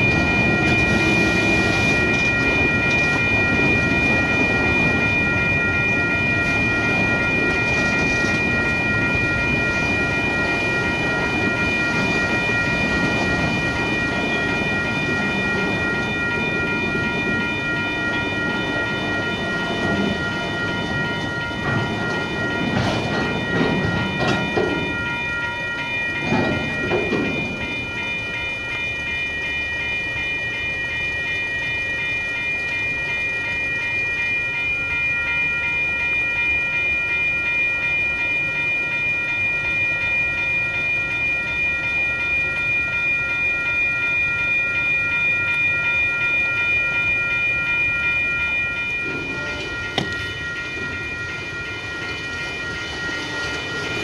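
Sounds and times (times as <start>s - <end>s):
freight train rumbling: 0.0s - 28.5s, 47.0s - 54.0s
railway crossing bell ringing: 0.0s - 54.0s
train cars clanking: 6.2s - 28.3s, 47.8s - 54.0s.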